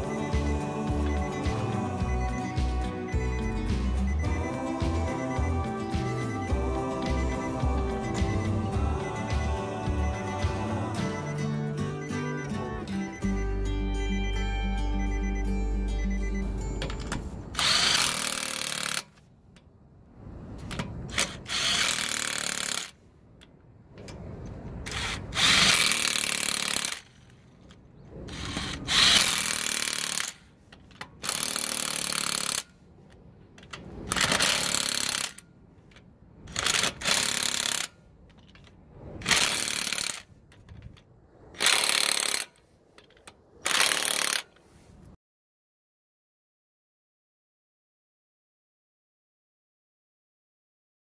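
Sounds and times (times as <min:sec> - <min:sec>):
impact wrench tightening lug nuts: 0:17.6 - 0:19.2, 0:20.7 - 0:23.0, 0:24.8 - 0:27.4, 0:28.3 - 0:32.7, 0:33.6 - 0:35.4, 0:36.5 - 0:41.0, 0:41.6 - 0:44.6.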